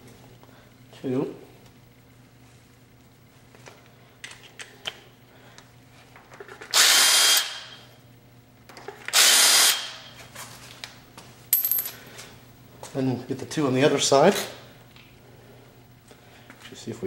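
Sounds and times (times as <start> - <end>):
power drill running: 6.7 - 7.8, 9.1 - 10.1.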